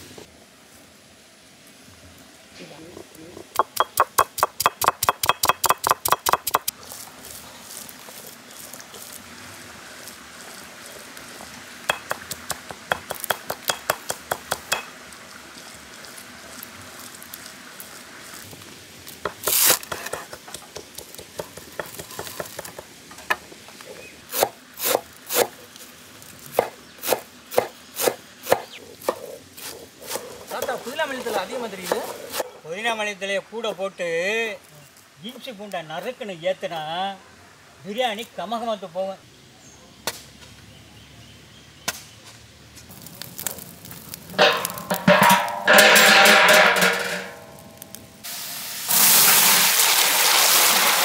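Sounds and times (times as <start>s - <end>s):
knife chopping on a board: 3.6s - 6.7s, 26.6s - 30.8s, 31.8s - 32.4s.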